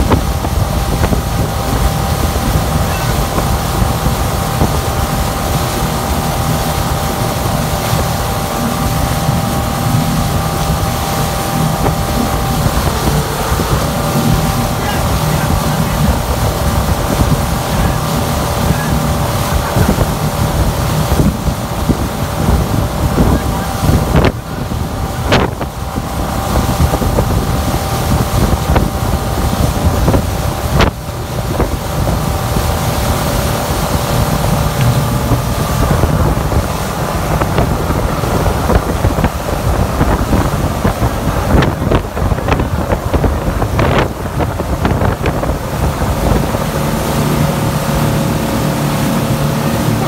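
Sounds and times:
churning wake rushing: 0:00.0 - 0:50.0
motorboat engine running: 0:00.0 - 0:50.0
wind noise on microphone: 0:00.0 - 0:50.0.

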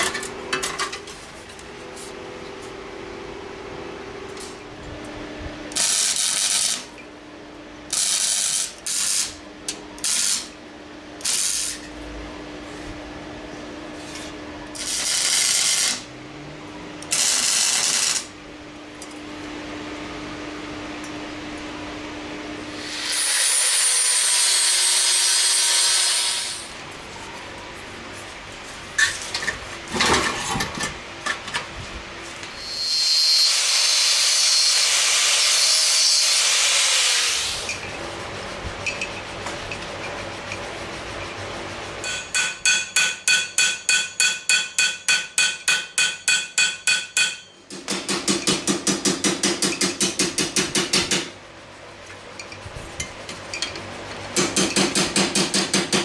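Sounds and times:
angle grinder cutting steel: 0:22.8 - 0:26.7, 0:32.6 - 0:37.8
hammer ringing on steel plate: 0:42.0 - 0:47.6.

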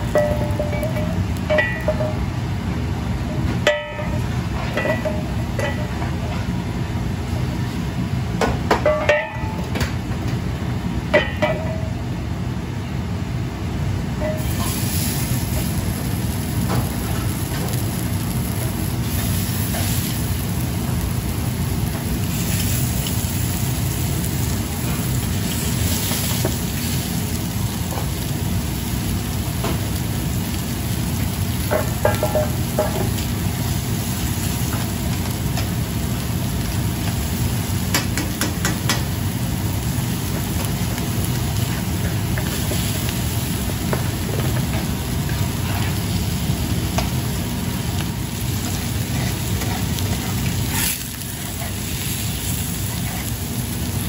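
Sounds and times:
gas range rumble: 0:00.0 - 0:54.0
meat sizzling in hot oil: 0:14.2 - 0:54.0.

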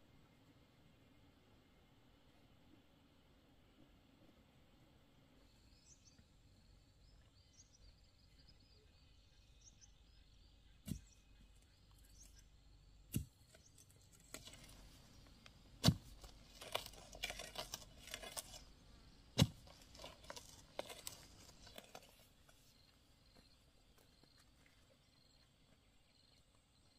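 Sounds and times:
faint bird chirps: 0:05.4 - 0:14.4
hoe chopping into soil: 0:10.8 - 0:11.2, 0:13.1 - 0:14.9, 0:15.6 - 0:18.7, 0:19.3 - 0:22.2
soil scraping and crumbling: 0:13.1 - 0:22.9.

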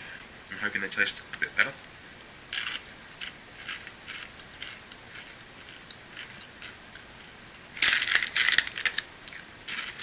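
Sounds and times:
snack bag crinkling: 0:02.5 - 0:06.8, 0:07.8 - 0:10.0
snack being chewed: 0:02.5 - 0:07.1, 0:07.8 - 0:10.0.

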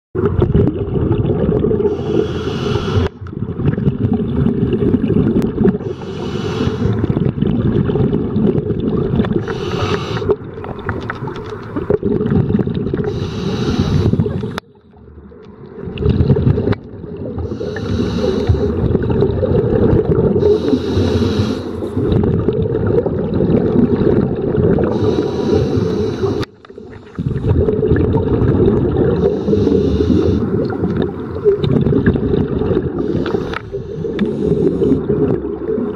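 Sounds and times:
underwater bubbling rumble: 0:00.2 - 0:35.9
breath hiss through regulator: 0:01.8 - 0:03.2, 0:05.8 - 0:07.1, 0:09.4 - 0:10.4, 0:13.0 - 0:14.4, 0:17.4 - 0:18.8, 0:20.4 - 0:22.1, 0:24.8 - 0:27.5, 0:29.2 - 0:30.8, 0:33.0 - 0:35.2.

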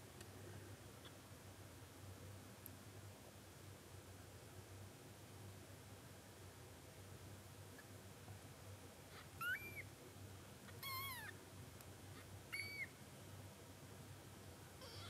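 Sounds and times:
kitten mewing: 0:09.4 - 0:09.8, 0:10.8 - 0:11.4, 0:14.8 - 0:15.0.

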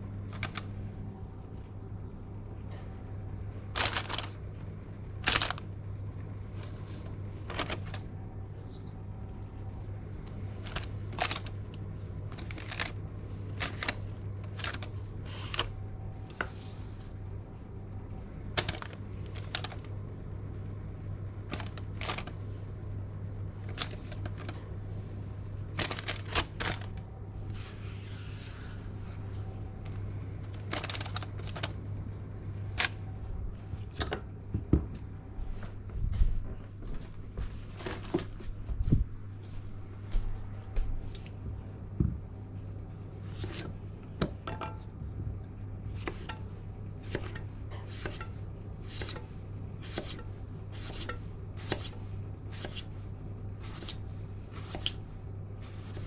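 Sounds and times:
low hum: 0:00.0 - 0:50.7
paper rustling: 0:00.2 - 0:00.7, 0:03.7 - 0:04.4, 0:05.2 - 0:05.6, 0:06.5 - 0:09.0, 0:10.2 - 0:13.0, 0:13.6 - 0:15.7, 0:18.6 - 0:19.9, 0:21.5 - 0:22.5, 0:23.6 - 0:24.6, 0:25.7 - 0:29.4, 0:30.5 - 0:31.8
baking paper crinkling: 0:00.2 - 0:01.8, 0:03.5 - 0:17.1, 0:18.5 - 0:20.0, 0:21.4 - 0:24.9, 0:25.7 - 0:31.9, 0:37.6 - 0:38.6.

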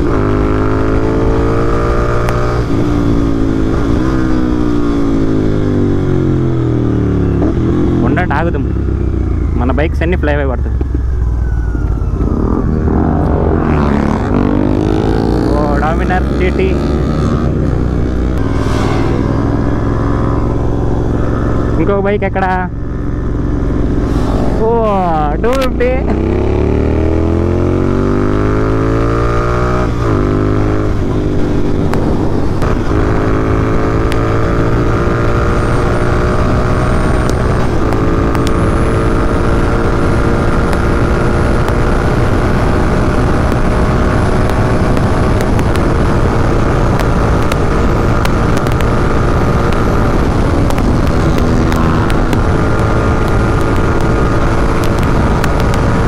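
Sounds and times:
motorcycle engine accelerating: 0:00.0 - 0:56.0
wind rushing: 0:11.2 - 0:28.0.

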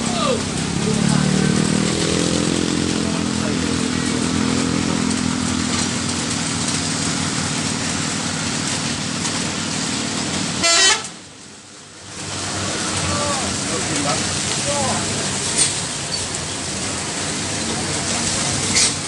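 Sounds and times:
heavy truck engines: 0:00.0 - 0:19.0
motorcycles running: 0:00.0 - 0:19.0
vehicle horn toot: 0:10.6 - 0:11.2.

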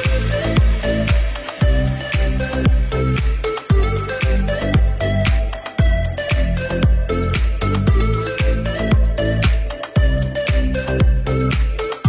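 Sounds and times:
steady kick drum: 0:00.0 - 0:12.0.

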